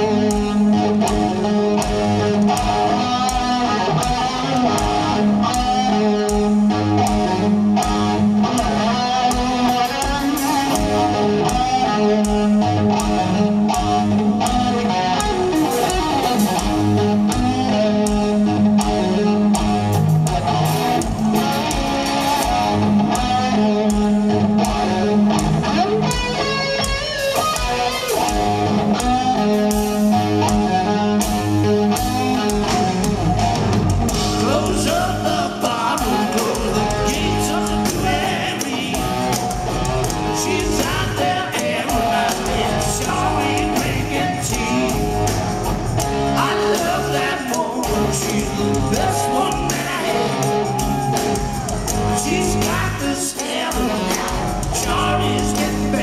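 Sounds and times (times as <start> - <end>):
drums: 0.0 - 56.0
electric guitar: 0.0 - 56.0
man singing: 34.2 - 39.4, 40.2 - 45.3, 46.3 - 50.7, 51.9 - 56.0.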